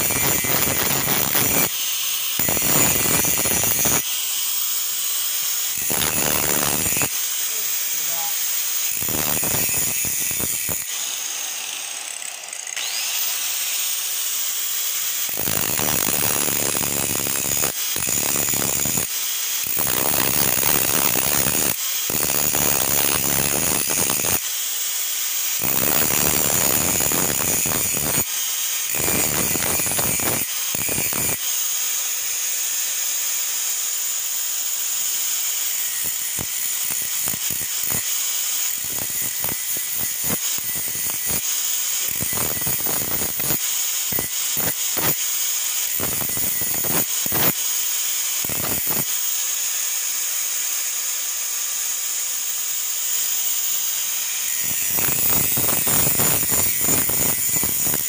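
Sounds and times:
disc grinding steel: 0.0 - 19.1, 35.4 - 47.6
angle grinder motor whine: 0.0 - 58.0.

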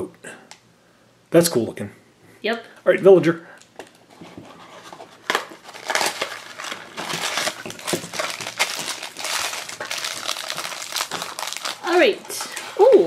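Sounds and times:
foil bag crinkling and tearing: 5.1 - 13.0.

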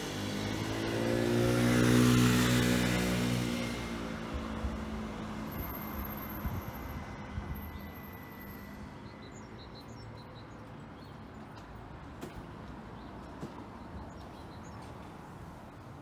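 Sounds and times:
car passing: 0.0 - 9.0
distant traffic hum: 0.0 - 16.0.

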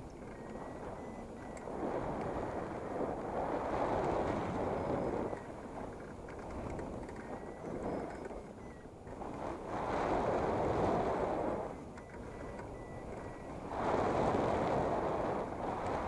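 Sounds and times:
faint high beeps: 0.0 - 2.9, 4.5 - 5.6, 7.0 - 9.0, 11.8 - 13.7
wind rushing over microphone: 0.0 - 16.0.

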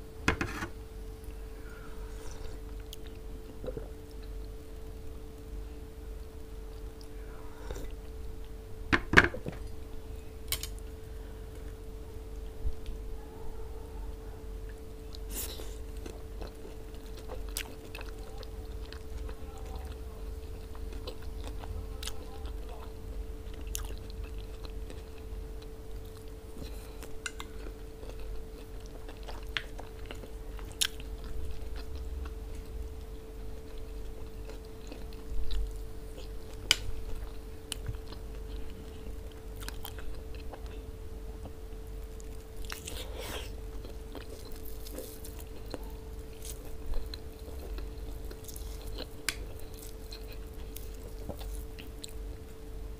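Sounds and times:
faint steady hum: 0.0 - 52.9
food crunching: 14.6 - 52.7
chewing and biting: 41.4 - 52.4.

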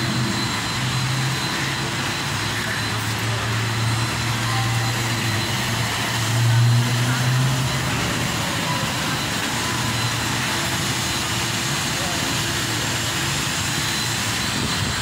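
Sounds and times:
wet vacuum running: 0.0 - 15.0.

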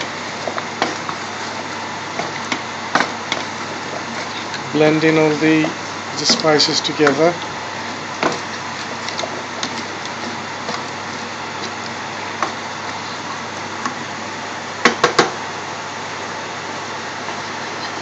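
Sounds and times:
steady hiss: 0.0 - 18.0
spatula stirring curry in pan: 5.4 - 14.0.

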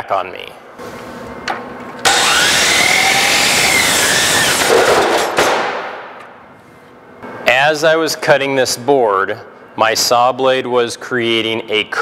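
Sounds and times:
miter saw cutting wood: 2.0 - 5.3
sharp crack: 4.4 - 6.2.

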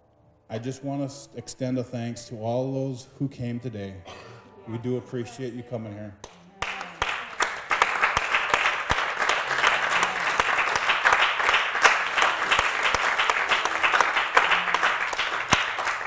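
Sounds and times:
crowd applauding: 6.2 - 16.0.

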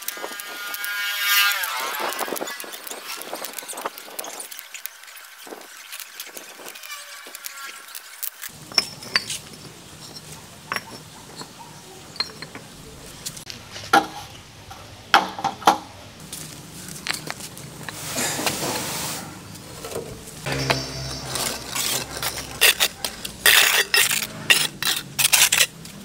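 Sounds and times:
clay bricks knocking and clinking: 8.5 - 12.8.

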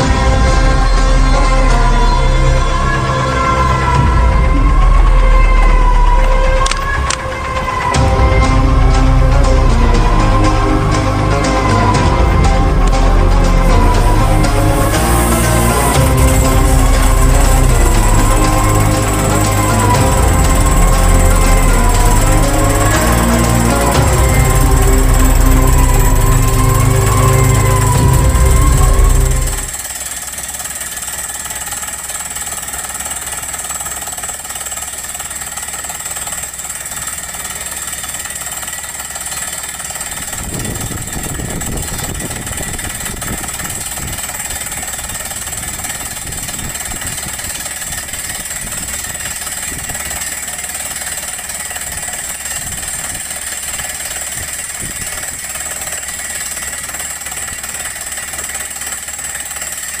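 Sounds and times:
deep rumble: 0.0 - 29.9, 39.6 - 55.9.

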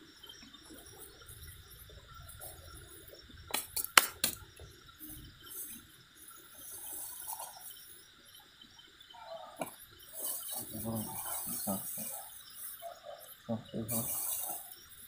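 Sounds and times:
crickets chirring: 0.0 - 15.0
sharp clicks: 3.5 - 4.5.

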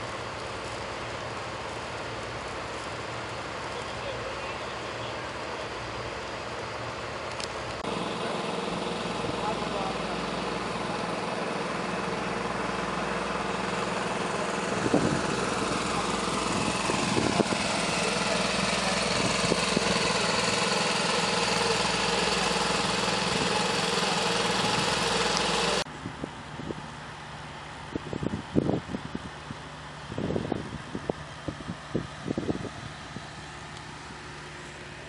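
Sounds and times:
heavy diesel machinery running: 0.0 - 35.0.

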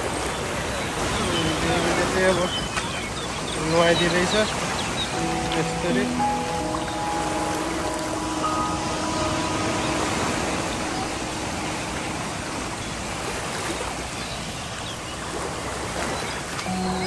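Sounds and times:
seawater rushing at shore: 0.0 - 17.0.

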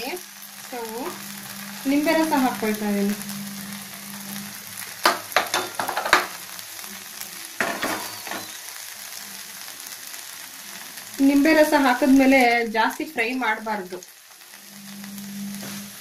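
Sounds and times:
food sizzling in a pan: 0.0 - 16.0.

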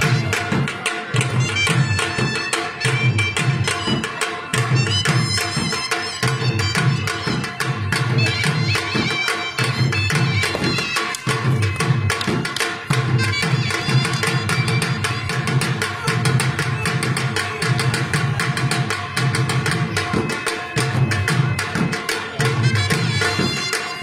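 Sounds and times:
barrel drum beats: 0.0 - 24.0
bagpipes playing folk tune: 1.4 - 11.9, 13.0 - 15.6, 22.3 - 24.0.

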